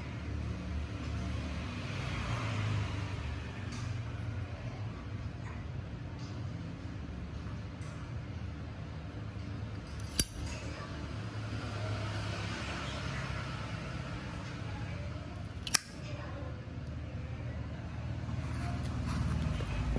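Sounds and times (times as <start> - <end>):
metal lighter lid clicking: 9.9 - 10.6, 15.6 - 16.0.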